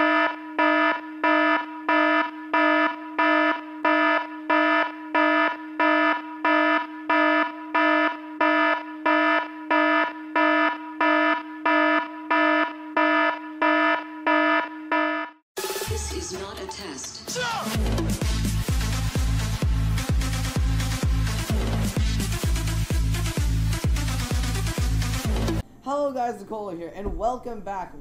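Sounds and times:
pulsing buzzing alarm tone: 0.0 - 15.4.

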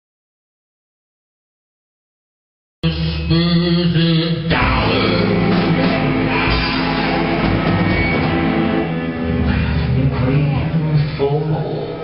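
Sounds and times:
live rock band playing: 4.4 - 11.2.

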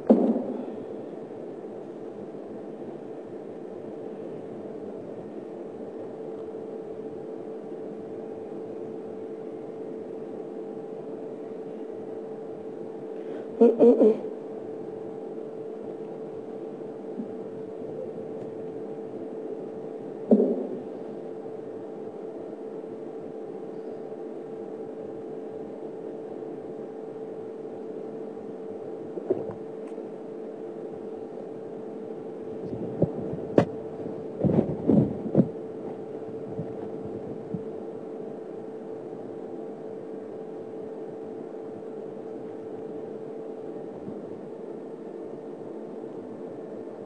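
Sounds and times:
steady single-pitched hum: 0.0 - 47.0
loud thump: 0.1 - 0.6.

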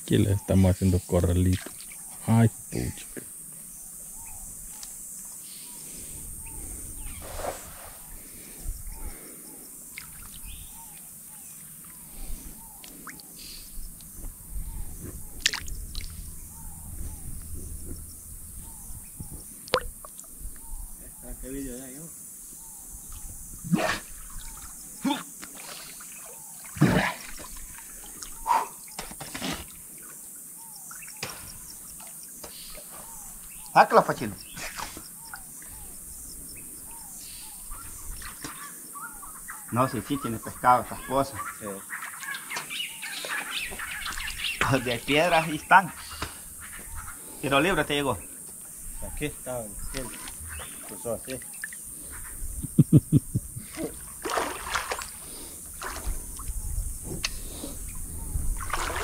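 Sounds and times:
water splashing in a stream: 1.4 - 2.1, 15.4 - 16.2, 19.6 - 20.4, 23.1 - 28.4, 53.6 - 56.7, 58.6 - 59.0
high-pitched insect drone: 12.1 - 26.4.

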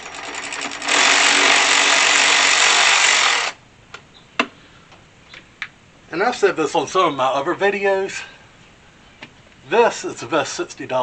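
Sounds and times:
electric ratchet motor whirring: 0.0 - 3.6.

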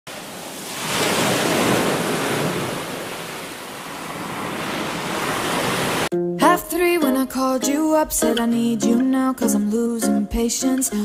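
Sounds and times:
small waves washing on beach: 0.1 - 6.1.

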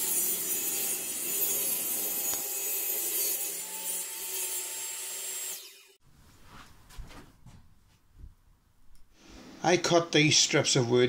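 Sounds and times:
table saw cutting plywood: 0.0 - 6.0.

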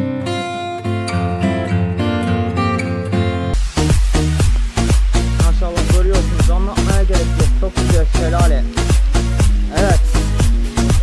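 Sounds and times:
upbeat dance music: 3.6 - 11.0.

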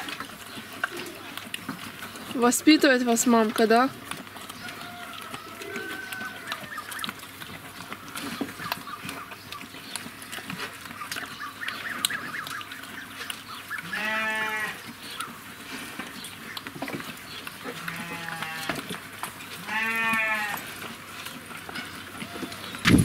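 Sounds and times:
pig crunching and snuffling feed: 0.0 - 23.0
wavering bleat: 13.8 - 14.8, 17.7 - 18.8, 19.6 - 20.6.

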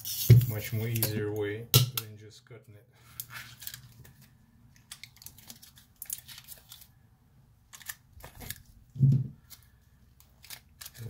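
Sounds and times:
foil crinkling and tearing: 5.1 - 6.9, 10.3 - 11.0.

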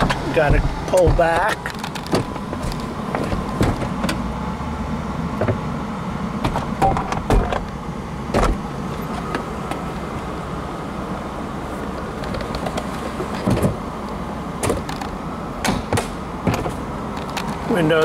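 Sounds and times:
latches clicking and clunking: 0.0 - 4.2, 6.4 - 9.9, 12.2 - 17.7
hydraulic convertible top running: 0.0 - 18.0.

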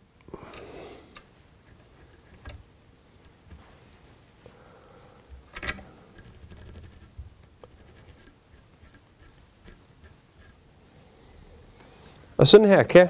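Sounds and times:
brush scratching through fibres: 6.2 - 10.6.

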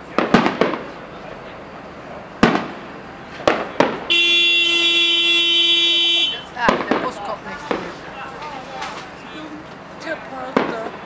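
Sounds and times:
fireworks bangs: 0.0 - 9.2, 10.4 - 11.0
ship's horn blast: 4.1 - 6.5.

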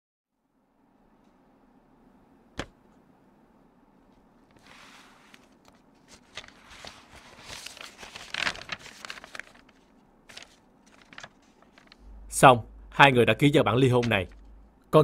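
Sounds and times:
papers rustling and crinkling: 4.5 - 12.0.

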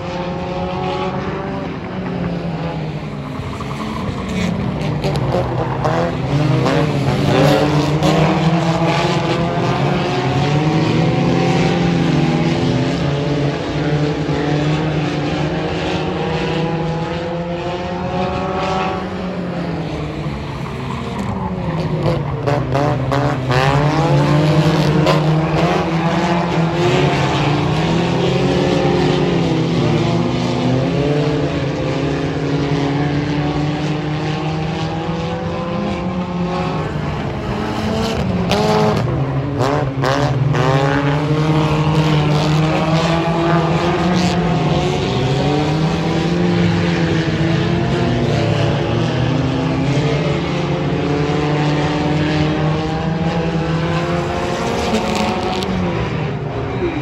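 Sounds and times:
race car engines running hard: 0.0 - 57.0.

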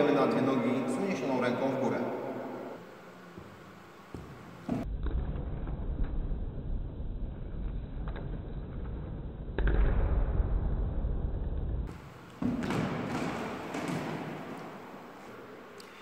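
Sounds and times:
scuffing noise: 3.2 - 4.9
thuds landing on gym mat: 12.4 - 14.6.

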